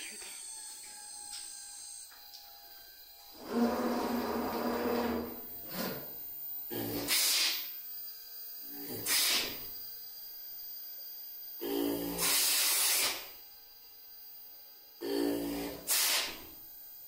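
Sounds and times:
router machine whine: 0.0s - 7.1s, 7.7s - 15.9s
hissing cutting bursts: 3.4s - 7.8s, 8.6s - 9.8s, 11.6s - 13.4s, 15.3s - 16.6s.

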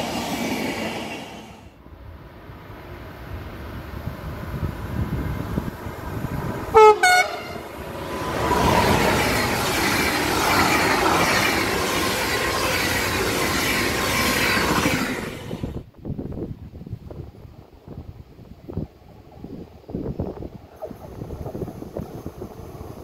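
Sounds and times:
train wheel and rail noise: 0.0s - 23.0s
train horn blasts: 6.7s - 7.7s.

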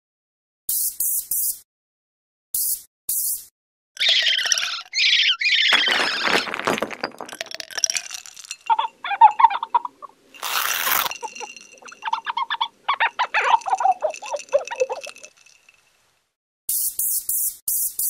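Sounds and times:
squeaky chirps and clicks: 2.6s - 6.4s, 8.5s - 15.7s.

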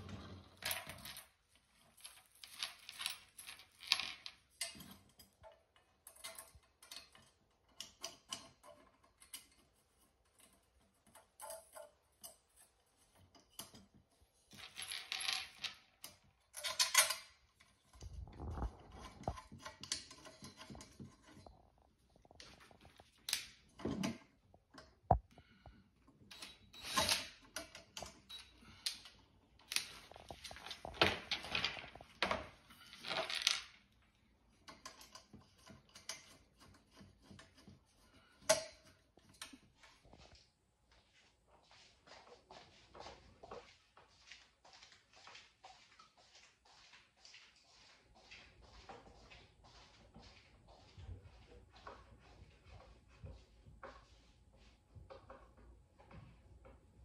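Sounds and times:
metal parts clicking and rattling: 0.4s - 21.5s, 26.3s - 33.8s.

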